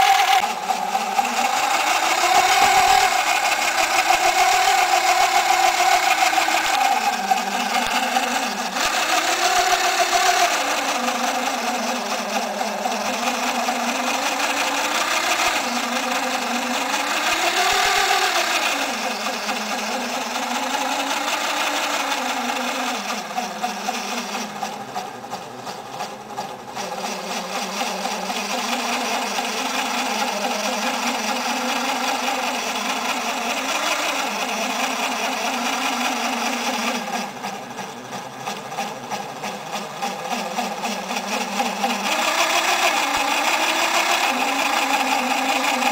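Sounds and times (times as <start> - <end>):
small electric motor whine: 0.0 - 45.9.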